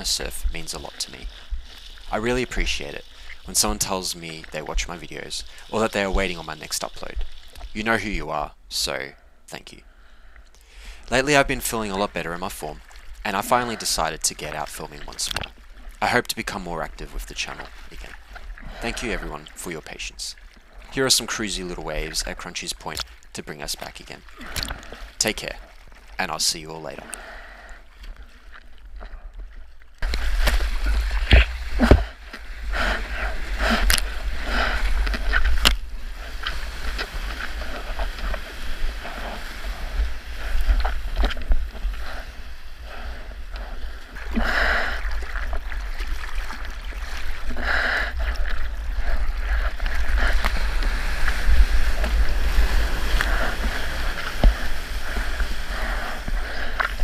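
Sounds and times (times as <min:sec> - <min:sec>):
sea water splashing and rushing: 0:00.0 - 0:09.0, 0:11.1 - 0:28.9, 0:29.9 - 0:57.0
wind rumbling on microphone: 0:30.0 - 0:57.0.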